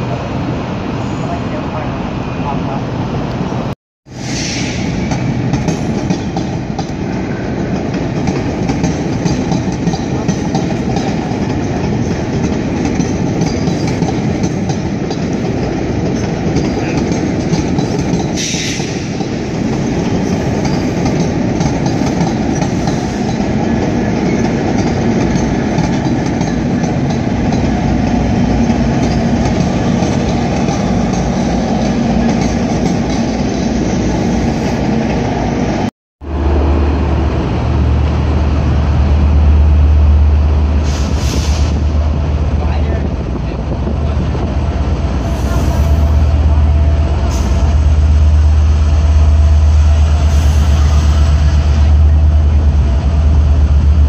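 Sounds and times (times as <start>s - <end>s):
diesel locomotive drone: 0.0s - 54.0s
train wheels clattering on rails: 4.4s - 35.3s.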